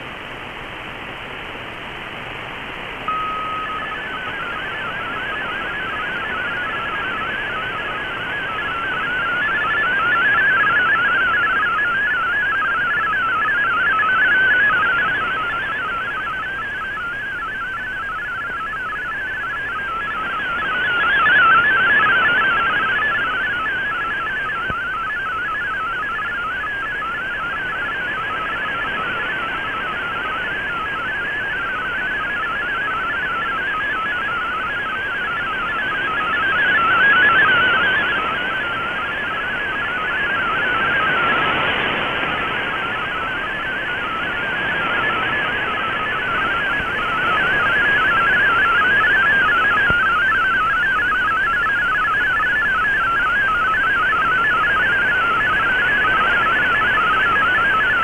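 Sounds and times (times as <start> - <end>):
warbling digital radio tones: 3.1 - 58.0
radio band hiss: 38.5 - 50.8.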